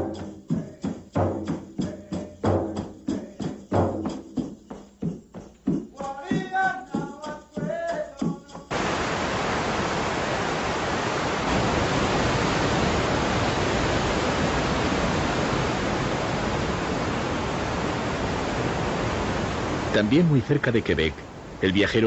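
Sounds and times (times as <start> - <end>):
person singing: 6.0 - 8.7
waterfall roaring: 8.7 - 22.0.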